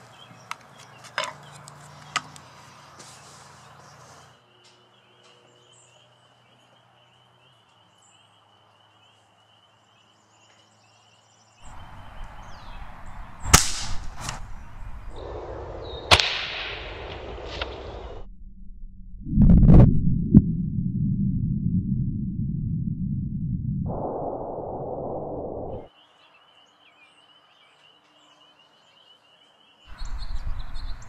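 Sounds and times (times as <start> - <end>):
outdoor background noise: 0.0 - 18.3, 25.6 - 31.0
pellet rifle shots: 13.4 - 14.5, 16.1 - 17.7.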